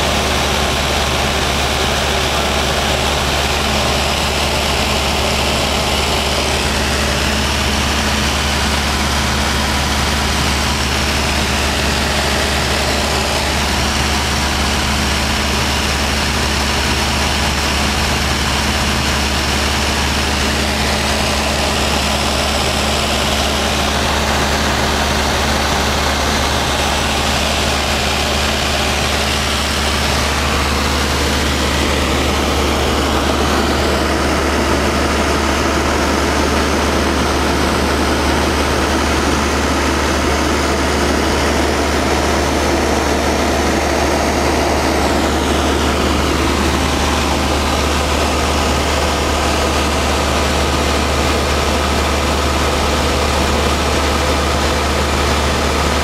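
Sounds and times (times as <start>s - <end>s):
rushing air: 19.6s - 53.2s.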